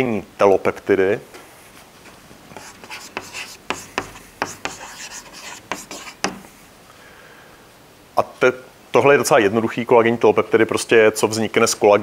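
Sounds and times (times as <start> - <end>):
chalk scraping on a blackboard: 2.5 - 6.5.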